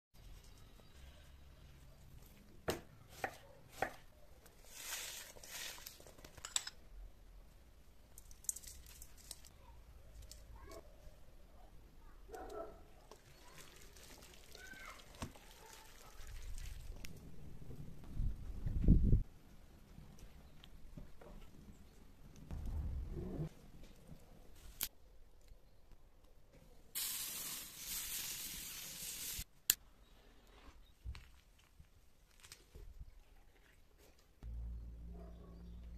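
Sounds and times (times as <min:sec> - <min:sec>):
knife chopping on cutting board: 0:02.7 - 0:04.0
wet rustling of onions mixed by hand: 0:04.5 - 0:06.2, 0:13.1 - 0:17.0
steady hiss: 0:27.0 - 0:29.5.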